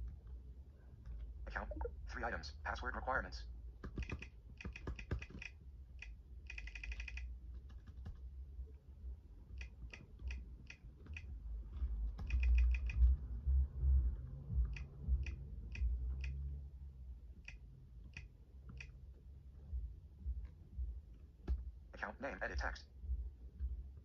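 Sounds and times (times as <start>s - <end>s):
laptop keyboard keystrokes: 3.8s - 8.3s, 9.5s - 13.2s, 17.4s - 19.0s.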